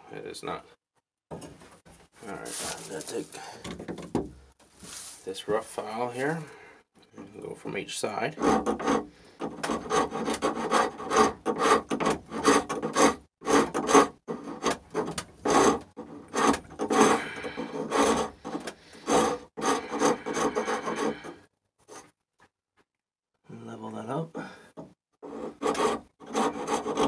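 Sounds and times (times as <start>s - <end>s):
hand rasp filing wood: 8.3s - 22.1s, 25.2s - 27.0s.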